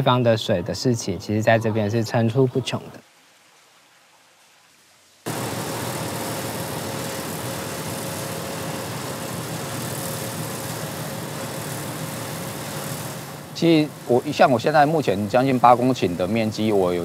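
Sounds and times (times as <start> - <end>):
combine harvester running: 5.3 - 17.0.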